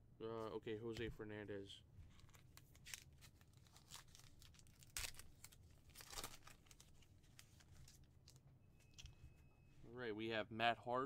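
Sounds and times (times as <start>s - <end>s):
card pack wrapper crinkling: 2.1s - 8.4s
wrapper ripping: 2.2s - 8.4s.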